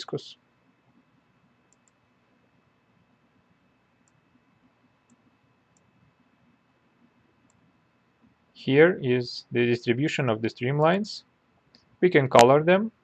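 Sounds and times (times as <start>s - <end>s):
computer mouse clicks: 1.7s - 2.0s, 4.0s - 4.2s, 5.0s - 5.9s, 7.4s - 7.7s.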